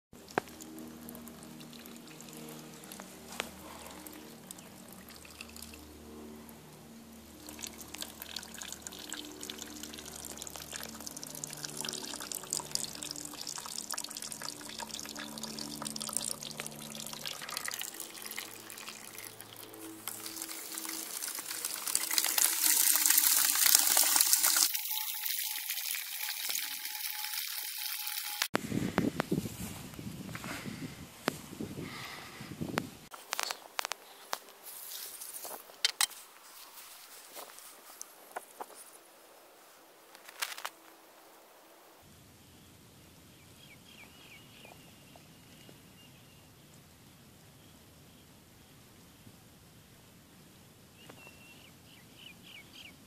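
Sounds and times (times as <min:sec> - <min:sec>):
water splashing into plastic bucket: 0:16.9 - 0:28.3.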